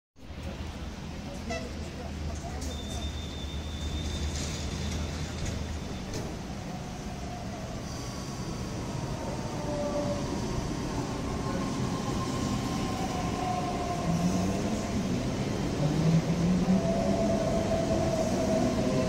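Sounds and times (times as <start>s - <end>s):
train rumbling: 0.2s - 19.0s.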